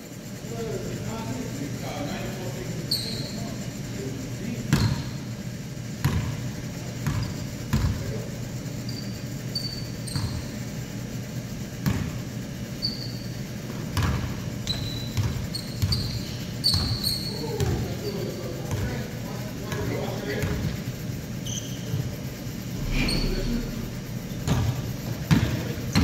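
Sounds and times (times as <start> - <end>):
sneaker squeaks: 2.8 - 3.7, 4.6 - 5.3, 6.0 - 8.0, 8.8 - 10.7, 11.8 - 18.9, 21.3 - 25.6
basketball bouncing on wooden floor: 13.7 - 16.1.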